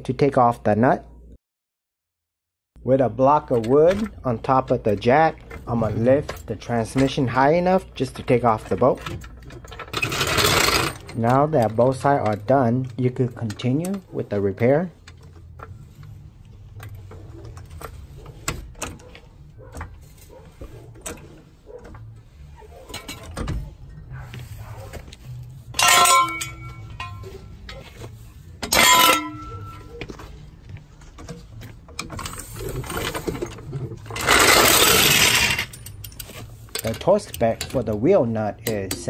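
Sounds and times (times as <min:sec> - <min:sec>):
loud metal clanks: 0:25.7 - 0:27.5, 0:28.6 - 0:29.9.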